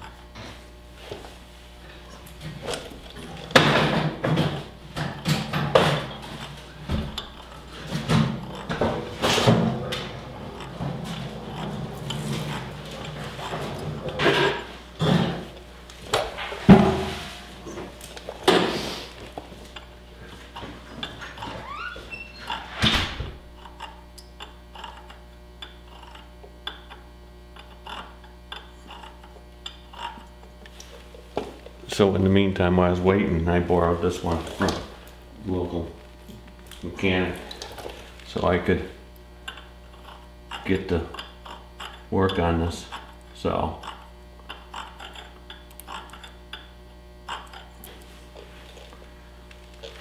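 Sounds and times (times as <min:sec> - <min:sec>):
steady low hum: 0:00.0 - 0:50.0
metal clicks and scrapes: 0:05.2 - 0:16.6, 0:23.6 - 0:31.0
rising squeak: 0:21.5 - 0:22.7.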